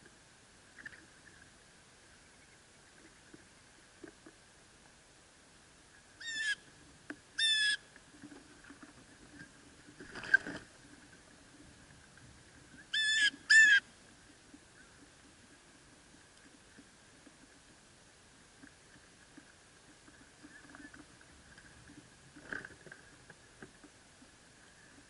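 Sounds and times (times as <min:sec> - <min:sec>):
blue jay calling: 0:06.2 - 0:06.6, 0:07.4 - 0:07.8, 0:12.9 - 0:13.9.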